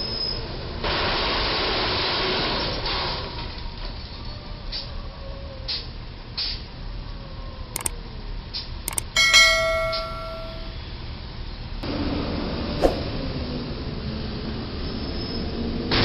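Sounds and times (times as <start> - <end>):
mouse clicks: 8.9 - 10.7
bright bell ding: 8.9 - 10.8.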